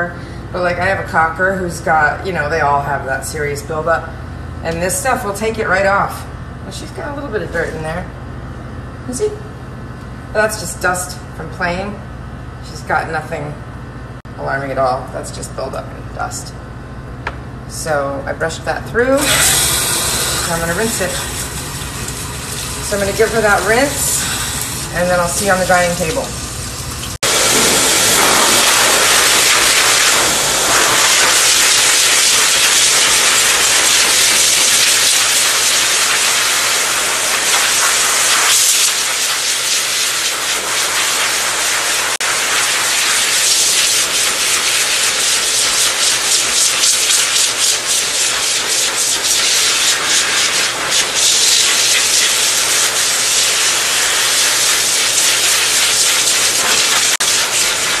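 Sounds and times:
pet dryer blowing air: 0:19.2 - 0:58.0.

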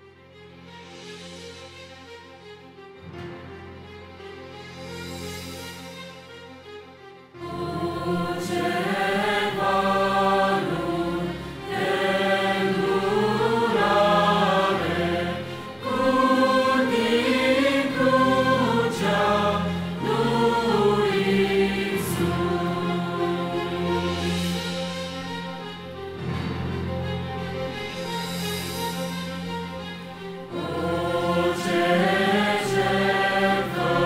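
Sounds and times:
sustained instrumental accompaniment: 0:00.0 - 0:34.0
choir singing a hymn: 0:07.4 - 0:27.7, 0:30.4 - 0:34.0.

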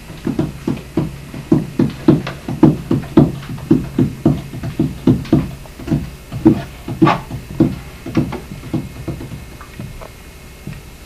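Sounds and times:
hollow wooden knocks: 0:00.0 - 0:10.9.

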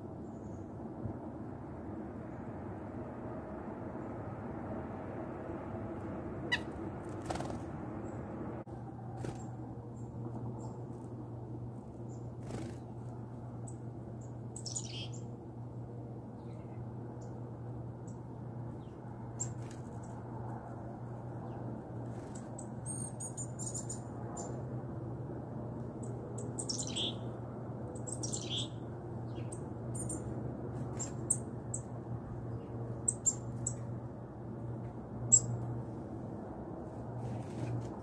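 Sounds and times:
steady low hum: 0:00.0 - 0:38.0
small songbirds chirping: 0:12.0 - 0:15.3, 0:18.0 - 0:20.2, 0:21.4 - 0:24.6, 0:26.0 - 0:27.4, 0:28.0 - 0:33.9, 0:35.3 - 0:35.6.

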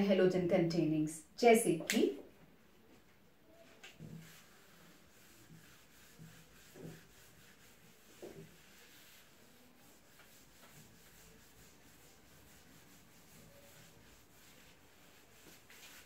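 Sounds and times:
eraser rubbing on whiteboard: 0:03.9 - 0:16.0.

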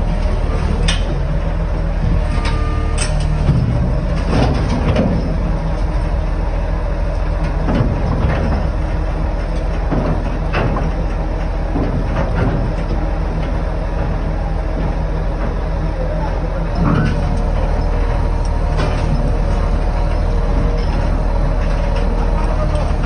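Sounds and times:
excavator diesel engine running: 0:00.0 - 0:23.0
steel tracks clanking and squealing: 0:00.0 - 0:23.0.

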